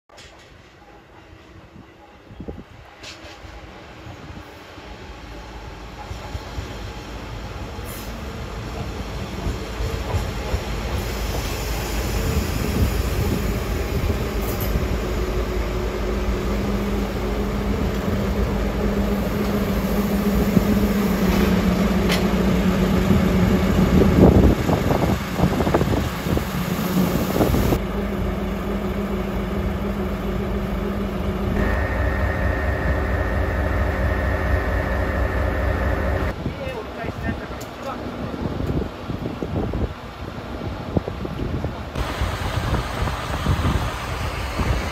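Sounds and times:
train and rail noise: 0.1 - 44.9
diesel locomotive engine humming: 2.0 - 38.2, 40.4 - 44.9
steady high tone: 27.7 - 36.3.

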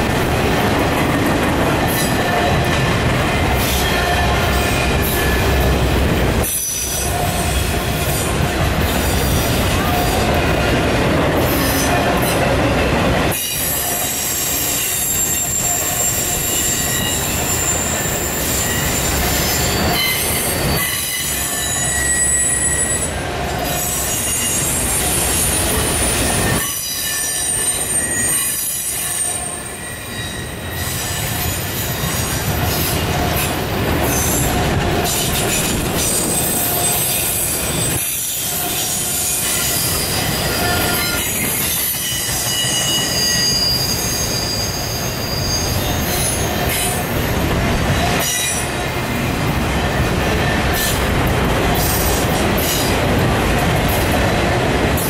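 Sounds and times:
freight cars rolling on rails: 0.0 - 55.0
high-pitched wheel squeal: 13.4 - 23.1, 23.7 - 32.8, 36.2 - 47.0.

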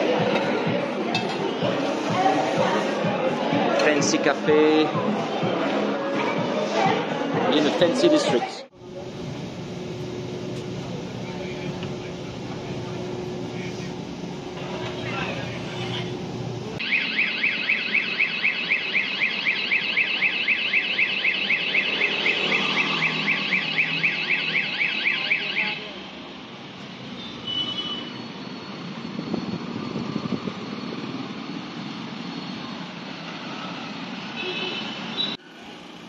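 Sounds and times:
street traffic: 0.0 - 36.0
electronic alarm warbling: 16.8 - 25.8.

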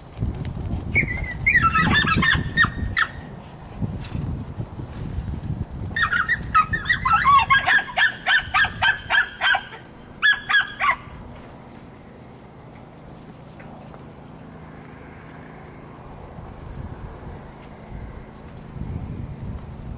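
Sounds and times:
puppy yapping shrilly: 0.9 - 3.8, 6.0 - 11.2.

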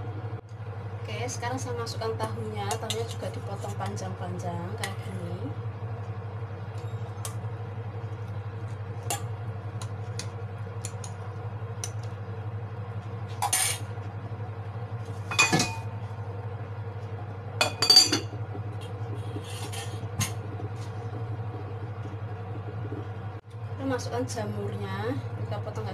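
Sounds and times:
steady low hum: 0.0 - 25.9
kitchenware clinking and clattering: 15.3 - 15.9, 17.6 - 18.3.

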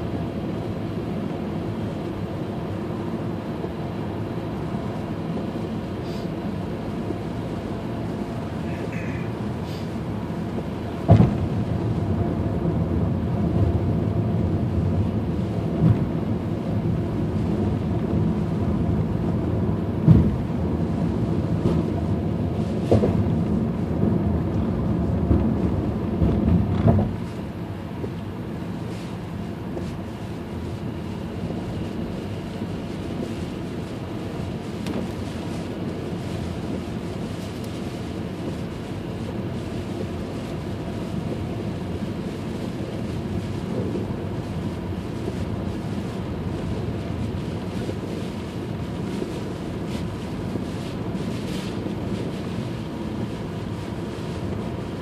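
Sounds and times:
tyre and wind rumble: 9.4 - 55.0.

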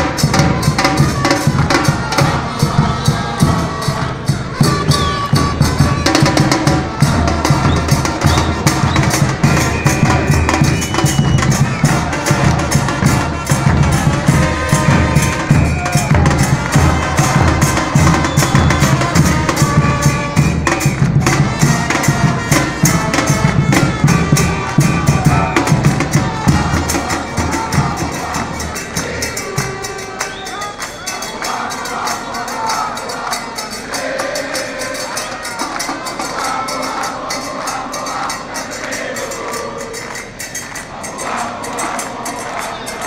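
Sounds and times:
bass drums beating: 0.0 - 30.2.

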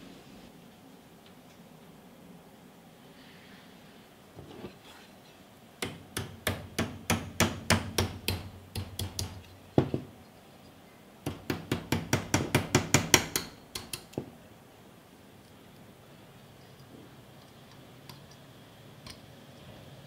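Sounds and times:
hammer tapping steel punch: 5.8 - 10.1, 11.3 - 14.3.

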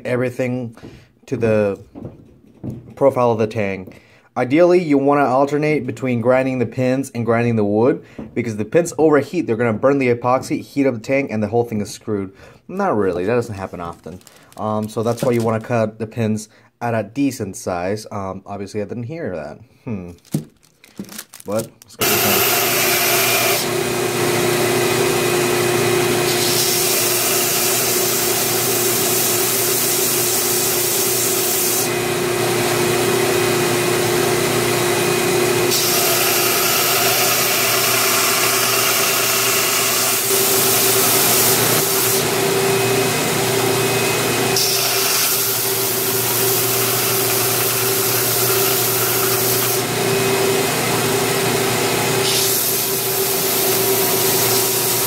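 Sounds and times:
grinder motor hum: 21.3 - 29.7, 31.9 - 55.0
belt grinder grinding hiss: 21.4 - 23.7, 35.7 - 42.4, 44.6 - 49.9, 52.2 - 55.0.

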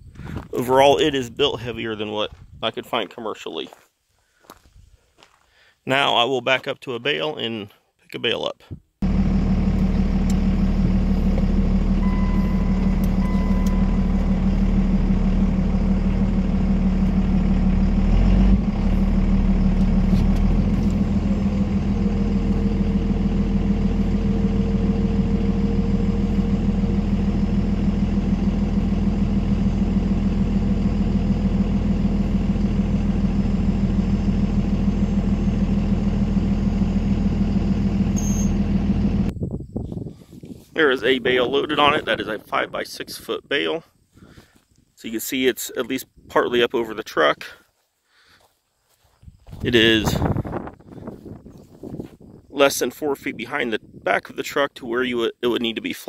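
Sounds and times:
high steady whine: 9.0 - 39.3
truck engine running: 9.0 - 39.4, 47.2 - 52.5
short beep: 12.0 - 14.8, 38.1 - 38.7.

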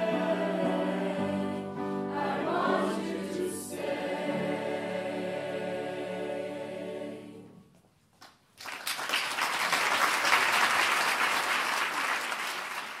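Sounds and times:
choir singing a chord: 0.0 - 7.7
audience applause: 8.6 - 13.0.

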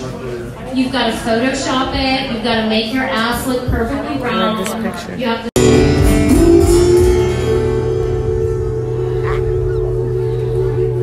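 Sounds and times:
faint voices: 8.1 - 11.0.

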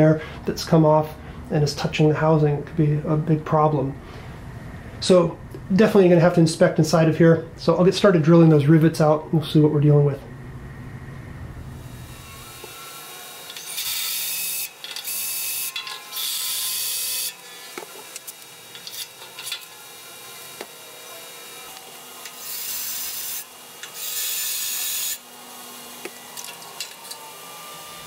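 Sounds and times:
power drill cutting rivets: 12.2 - 28.0.

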